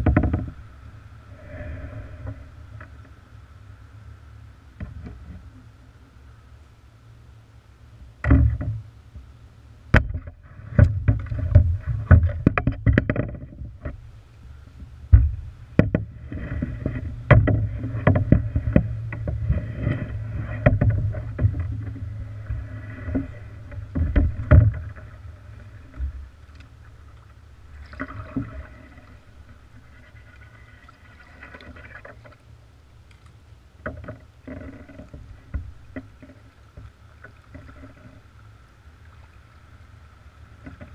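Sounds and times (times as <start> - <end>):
paddle knocks and clunks: 0.0 - 0.7, 8.2 - 9.3, 9.9 - 14.0, 15.1 - 26.3, 33.8 - 38.2
paddle splashing in water: 15.3 - 32.5.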